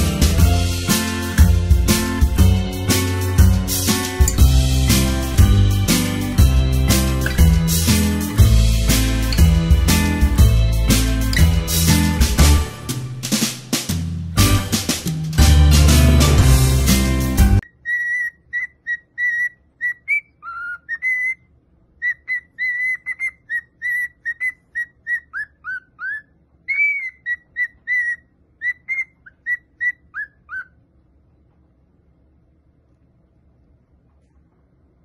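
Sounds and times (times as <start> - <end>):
cockatiel whistling: 17.6 - 21.4, 22.0 - 30.7.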